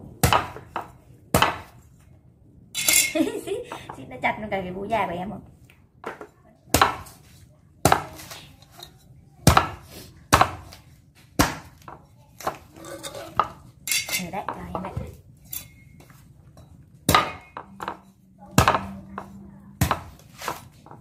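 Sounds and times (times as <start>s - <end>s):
cleaver chopping coconut husk: 0.2s - 1.8s, 6.7s - 7.2s, 7.8s - 8.4s, 9.4s - 12.7s, 17.0s - 21.0s.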